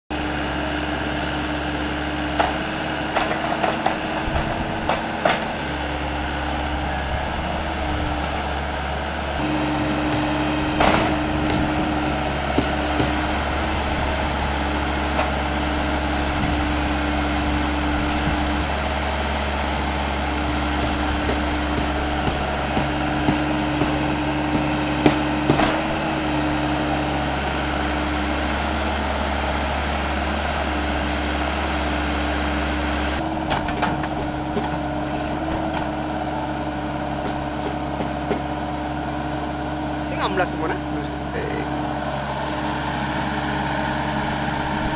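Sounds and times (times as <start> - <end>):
excavator diesel engine: 0.0 - 44.9.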